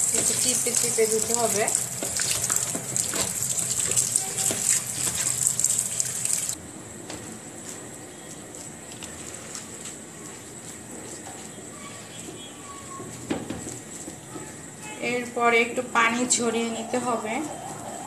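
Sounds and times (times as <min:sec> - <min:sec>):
hands squeezing wet radish: 0:00.0 - 0:06.6, 0:07.6 - 0:12.3
tap water running into sink: 0:00.0 - 0:06.6.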